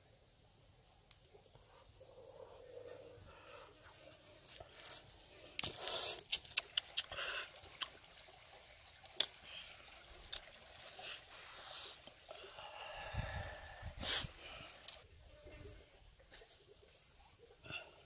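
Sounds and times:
close sniff: 0:13.9 - 0:14.4.

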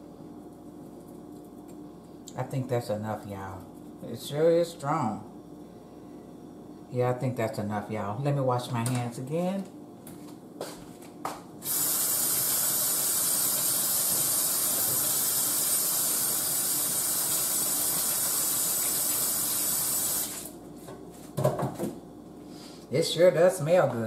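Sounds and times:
faucet water running: 0:11.6 - 0:20.6.

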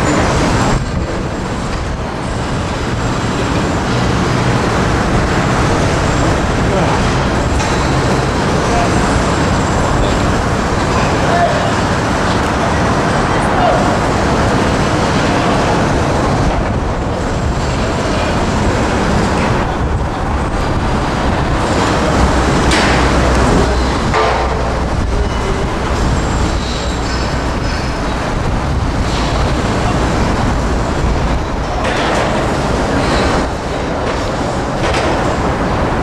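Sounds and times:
loud outdoor rumbling: 0:00.0 - 0:36.0.

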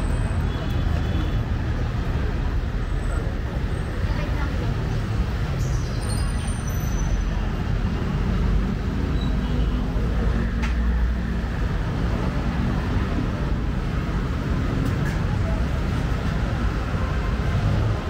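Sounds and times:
traffic engine rumble: 0:00.0 - 0:18.0.

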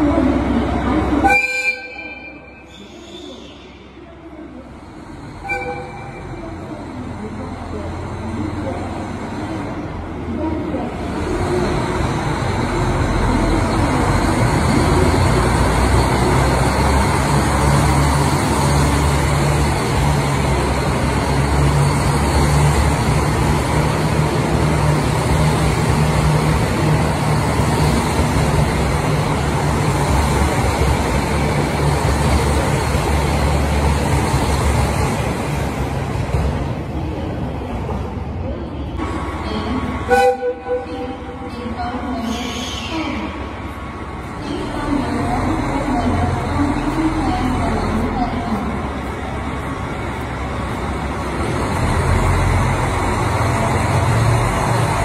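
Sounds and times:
diesel engines humming: 0:00.0 - 0:55.0
wheel and rail noise: 0:00.0 - 0:55.0.

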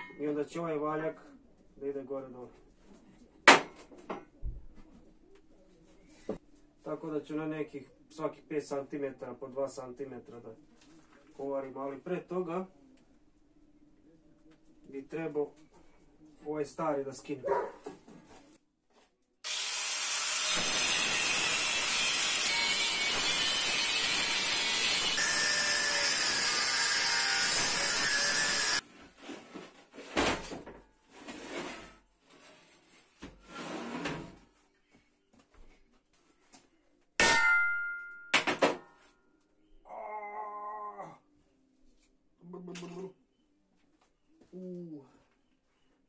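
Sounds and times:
angle grinder on steel: 0:19.5 - 0:28.8.

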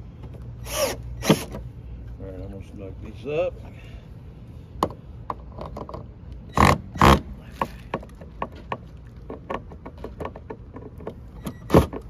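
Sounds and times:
cordless drill driving screws: 0:00.6 - 0:01.5.

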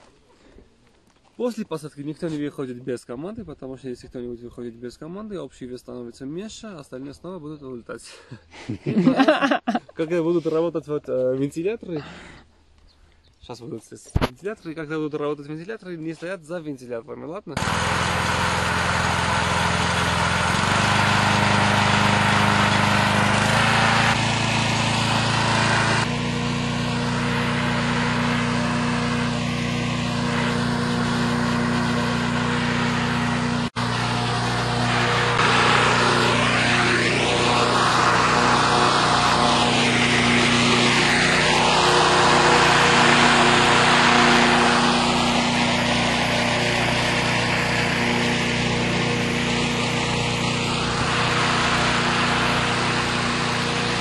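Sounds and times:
inflator fan engine running: 0:17.6 - 0:54.0.

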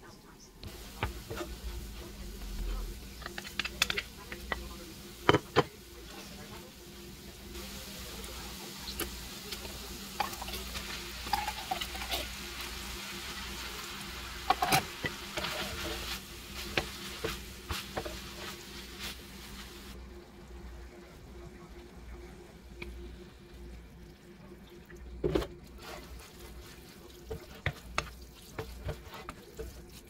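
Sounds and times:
meat sizzling in frying pan: 0:07.4 - 0:20.0.

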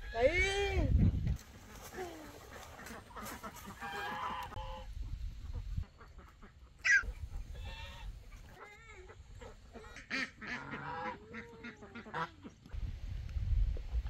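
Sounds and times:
poultry calling: 0:02.4 - 0:04.9, 0:05.5 - 0:12.4.

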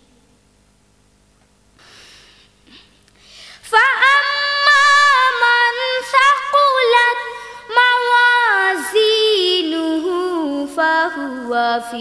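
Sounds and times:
girl chanting melodically: 0:03.6 - 0:12.0.

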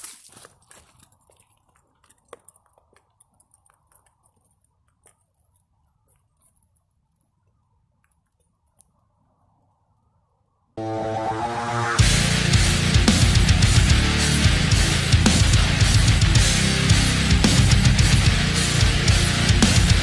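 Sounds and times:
footsteps crunching dry leaves: 0:00.0 - 0:02.8.

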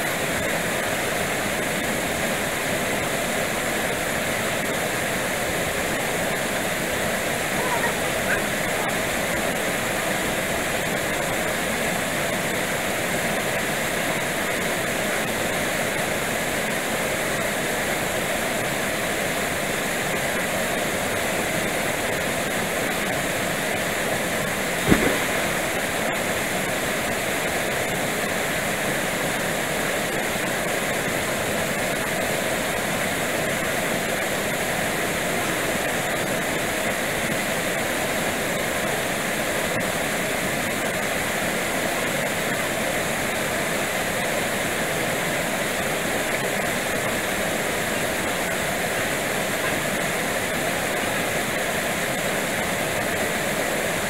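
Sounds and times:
waterfall rushing: 0:00.0 - 0:39.1, 0:43.0 - 0:54.0
sharp knock: 0:24.8 - 0:25.8.

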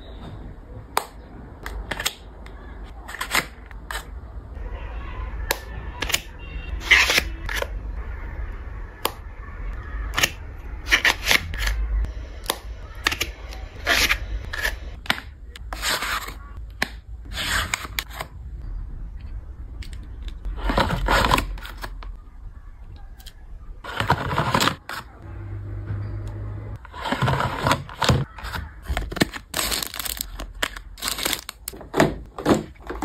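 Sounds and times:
packaging scraping and rustling: 0:20.5 - 0:22.0, 0:23.8 - 0:25.2, 0:26.8 - 0:31.9.

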